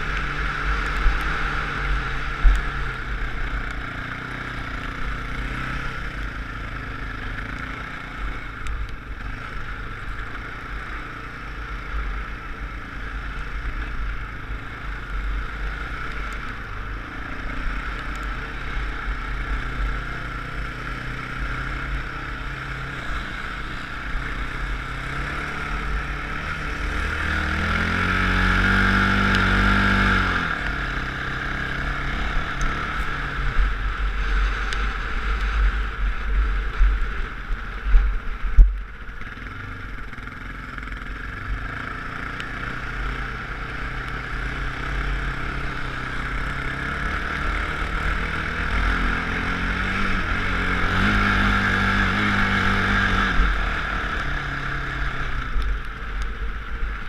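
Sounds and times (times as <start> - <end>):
off-road vehicle engine revving: 15.4 - 37.4, 39.2 - 55.9
wind rumble on microphone: 32.3 - 39.2.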